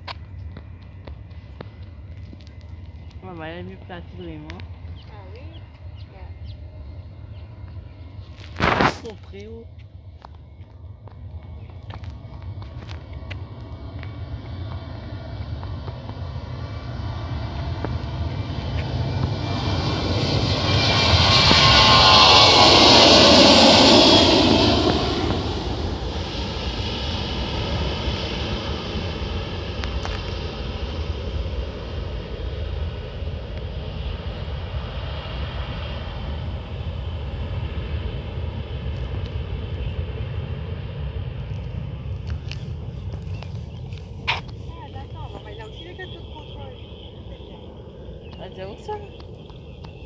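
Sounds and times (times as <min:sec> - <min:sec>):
jet airliner roar: 0:00.0 - 0:50.0
jet engine whine sliding down: 0:00.0 - 0:50.0.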